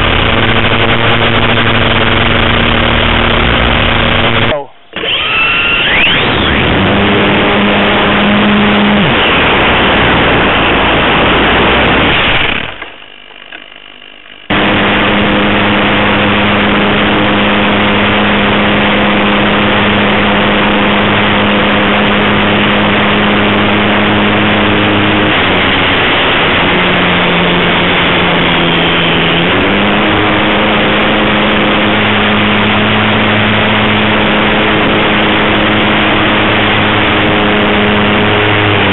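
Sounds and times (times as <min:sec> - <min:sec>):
model airplane motor drone: 0:00.0 - 0:38.9
wind rush: 0:06.6 - 0:12.7, 0:14.5 - 0:38.9.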